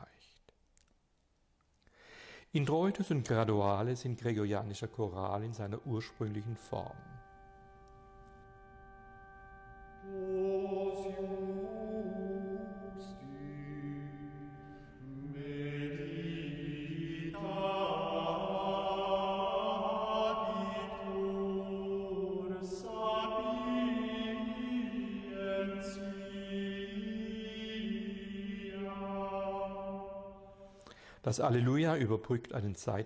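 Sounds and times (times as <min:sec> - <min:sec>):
voices singing unaccompanied chant: 0:10.0 - 0:30.7.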